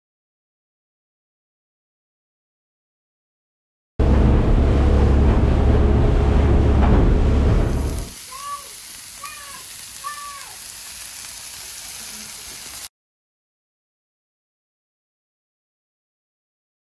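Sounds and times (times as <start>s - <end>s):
boat motor rumbling: 4.0s - 8.1s
fish sizzling on a grill: 7.8s - 12.9s.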